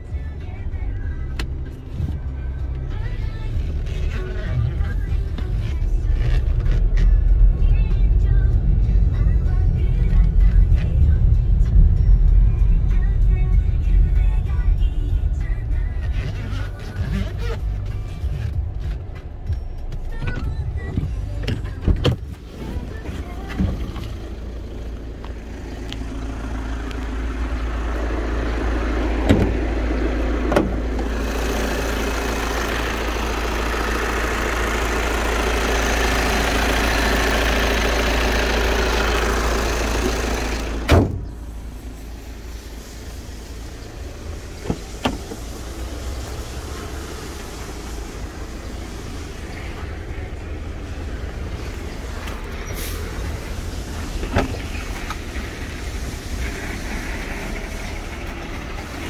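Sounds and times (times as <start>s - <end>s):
diesel engine idling clatter: 0.0s - 59.0s
car bonnet shutting thud: 29.2s - 29.6s, 30.5s - 30.8s, 40.8s - 41.3s, 54.2s - 54.6s.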